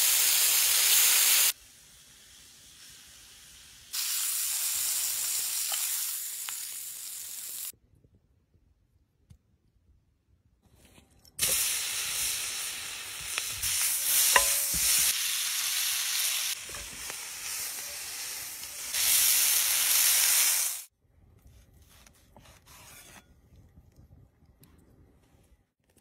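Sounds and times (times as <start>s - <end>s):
food sizzling in hot oil: 0.0s - 7.7s, 11.4s - 20.9s.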